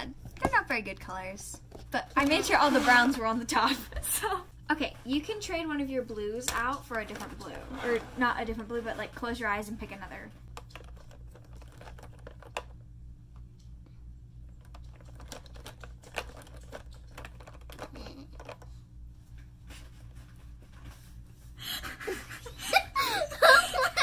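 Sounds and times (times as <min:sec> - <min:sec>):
low steady hum: 0:00.0 - 0:24.0
markers rattling in plastic bin: 0:10.6 - 0:12.7, 0:14.6 - 0:18.6.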